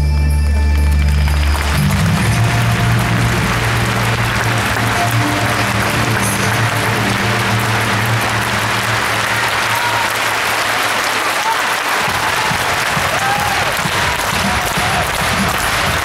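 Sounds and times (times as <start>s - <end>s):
audience applauding: 0.0s - 16.0s
low sustained music note: 1.4s - 9.7s.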